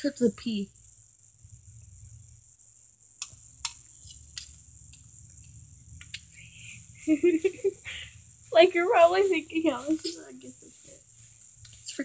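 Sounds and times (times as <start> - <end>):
crickets chirring: 0.0 - 12.0
sharp clicks: 3.2 - 6.4.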